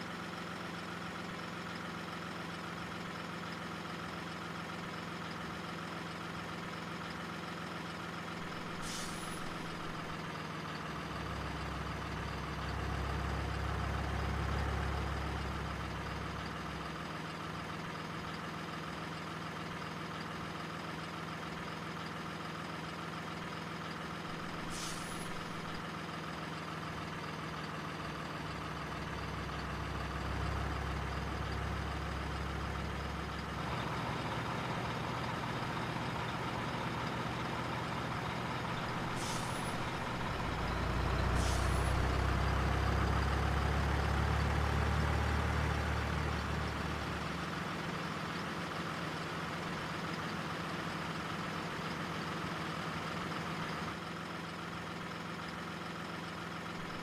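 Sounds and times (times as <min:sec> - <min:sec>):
diesel truck engine running: 0:00.0 - 0:57.0
air brake hiss: 0:08.5 - 0:10.1, 0:24.3 - 0:25.8, 0:38.9 - 0:42.3.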